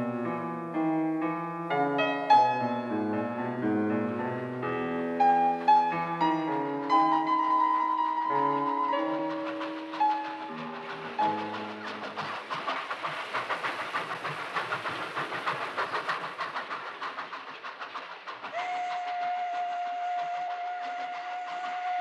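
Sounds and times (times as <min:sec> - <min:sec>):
train wheels clattering over rail joints: 0:02.0 - 0:22.0
long steady train whistle: 0:18.5 - 0:22.0.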